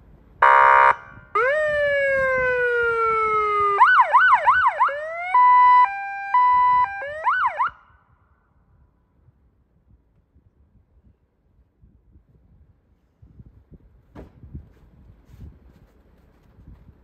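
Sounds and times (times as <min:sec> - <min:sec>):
buzzy horn blast: 0:00.4 - 0:01.1
siren wailing and yelping: 0:01.4 - 0:07.9.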